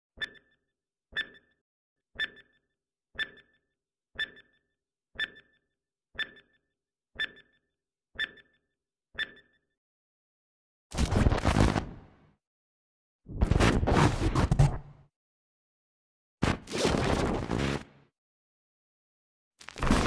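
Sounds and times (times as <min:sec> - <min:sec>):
electronic beep with low thump: 0:00.2 - 0:01.6, 0:02.2 - 0:03.6, 0:04.2 - 0:05.6, 0:06.2 - 0:06.6, 0:07.2 - 0:08.6, 0:09.2 - 0:09.6.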